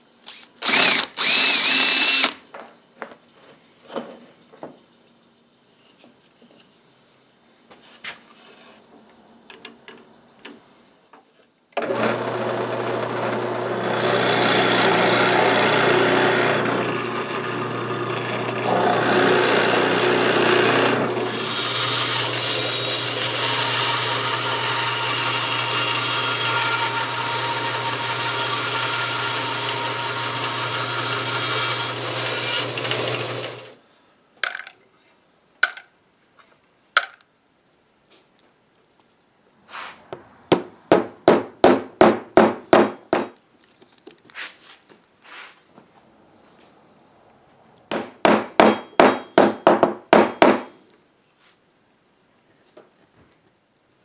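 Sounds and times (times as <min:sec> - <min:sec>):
bandsaw slicing wood: 0:00.3 - 0:02.4, 0:11.8 - 0:33.7
drill press cutting wood: 0:00.3 - 0:02.4, 0:11.8 - 0:33.8.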